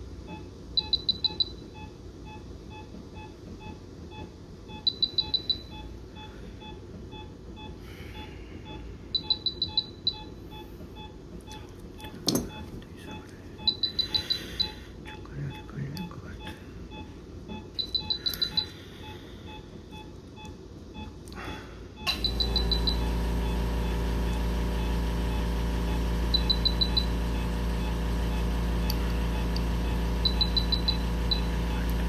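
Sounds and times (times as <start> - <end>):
high electronic beeps: 8.7 - 11.1, 12.5 - 15.7, 17.0 - 21.1, 27.8 - 32.0
loud steady machine hum: 21.3 - 32.0.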